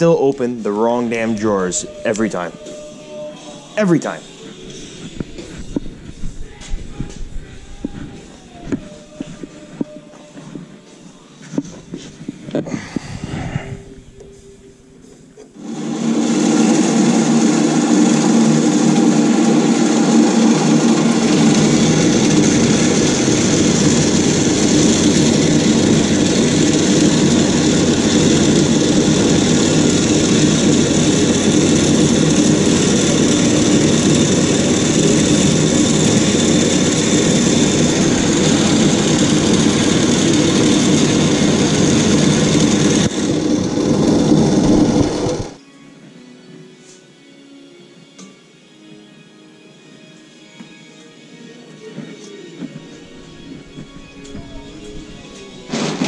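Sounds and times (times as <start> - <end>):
band saw cutting steel: 15.6 - 45.6.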